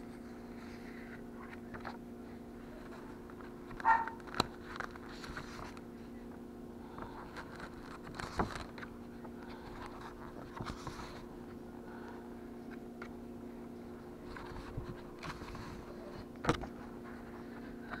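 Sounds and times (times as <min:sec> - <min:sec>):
steady low hum: 0:00.0 - 0:18.0
pages turning: 0:07.4 - 0:08.9.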